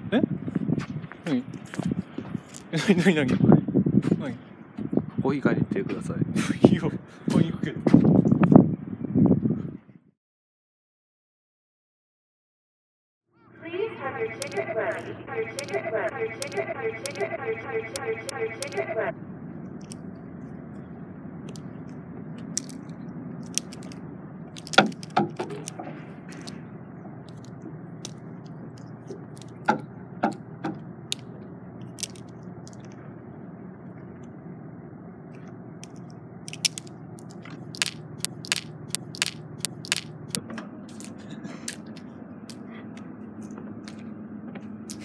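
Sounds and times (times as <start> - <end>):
wind buffeting microphone: 0.0 - 2.5, 3.1 - 10.0
plastic rings clacking together: 21.5 - 24.0, 24.6 - 26.6, 27.3 - 28.2, 28.8 - 30.4, 31.9 - 33.0, 35.8 - 42.0.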